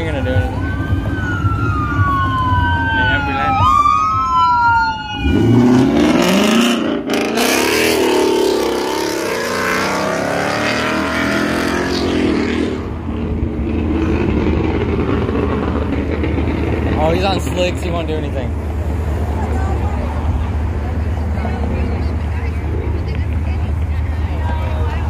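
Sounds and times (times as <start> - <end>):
siren wailing: 0.0 - 6.6
car engine revving: 5.0 - 23.9.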